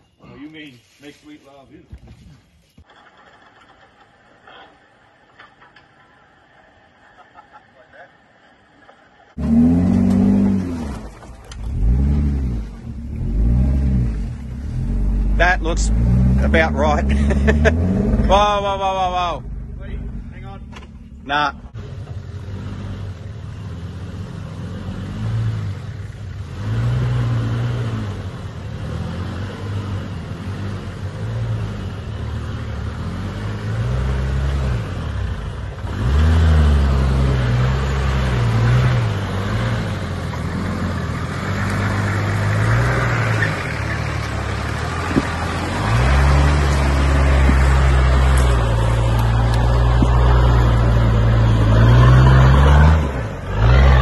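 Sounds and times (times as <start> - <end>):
diesel engine revving: 8.3 - 54.0.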